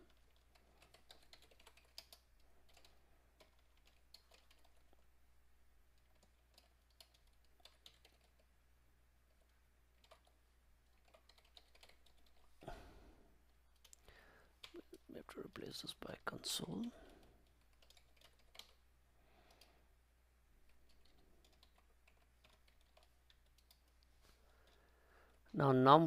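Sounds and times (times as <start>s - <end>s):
keyboard typing: 0.0s - 5.1s, 5.9s - 8.5s, 9.3s - 12.6s, 13.7s - 15.0s, 17.0s - 19.8s, 20.6s - 24.0s.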